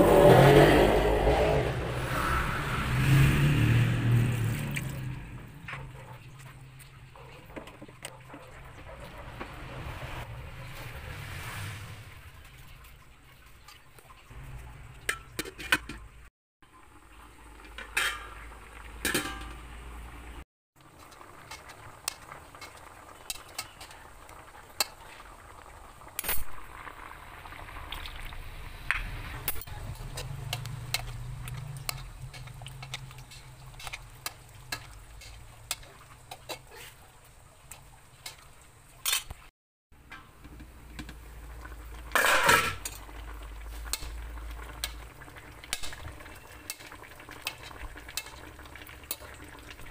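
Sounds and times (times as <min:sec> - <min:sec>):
liquid simmering and bubbling: 0:00.0 - 0:49.9
metal utensils clinking: 0:15.0 - 0:16.1, 0:17.6 - 0:18.4, 0:19.0 - 0:19.7, 0:21.0 - 0:24.1, 0:29.4 - 0:37.0, 0:37.7 - 0:39.4, 0:42.1 - 0:43.2.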